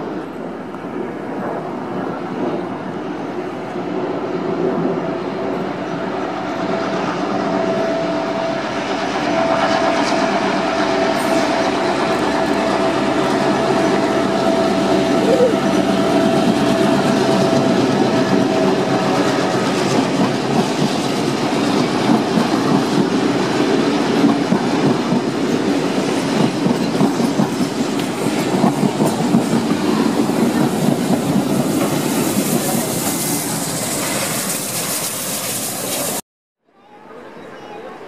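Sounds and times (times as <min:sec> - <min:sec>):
steam locomotive hissing: 0:04.7 - 0:36.2
train wheels clicking over rail joints: 0:15.9 - 0:36.2.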